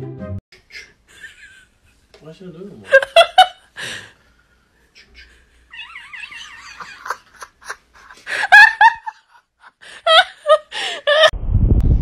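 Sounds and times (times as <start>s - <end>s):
high wavering laughter: 4.9s - 11.3s.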